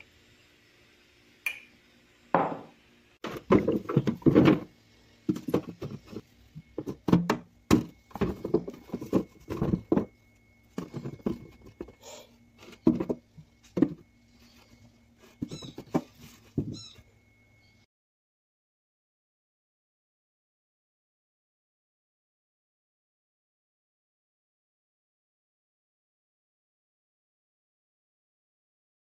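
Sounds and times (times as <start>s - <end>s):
low steady hum: 0.0s - 17.9s
short high squeaks: 15.4s - 15.9s, 16.7s - 17.1s.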